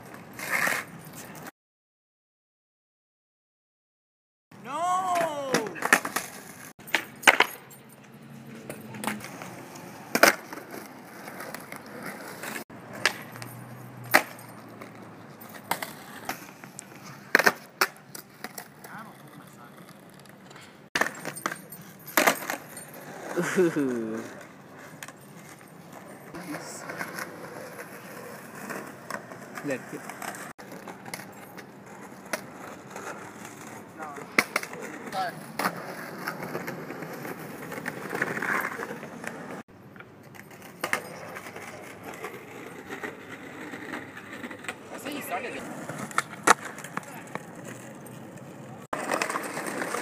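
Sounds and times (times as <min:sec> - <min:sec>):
skateboard wheels rolling: 0:00.0 - 0:01.5, 0:04.8 - 0:07.7, 0:08.3 - 0:50.0
person exclaiming: 0:04.6 - 0:05.9, 0:23.4 - 0:24.3
skateboard clacks and pops: 0:08.6 - 0:13.5, 0:14.1 - 0:20.4, 0:45.6 - 0:50.0.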